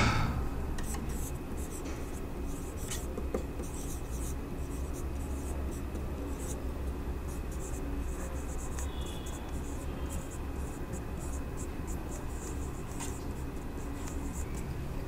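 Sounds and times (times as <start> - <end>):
low hum: 0.0 - 0.8
marker writing on whiteboard: 0.8 - 15.0.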